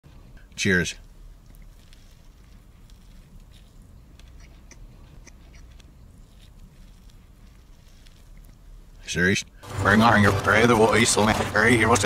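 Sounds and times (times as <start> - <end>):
steady low hum: 0.1 - 12.0
man chewing crunchy food: 1.0 - 9.0.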